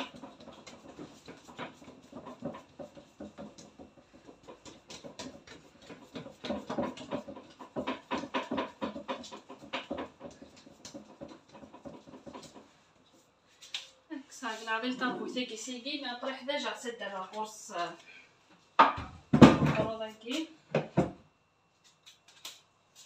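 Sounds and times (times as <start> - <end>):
hands patting dough: 0.0 - 13.9.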